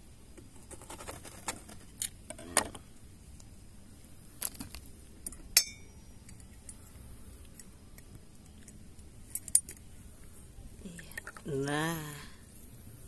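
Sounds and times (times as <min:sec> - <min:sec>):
sharp ringing clink: 0:05.6 - 0:06.2.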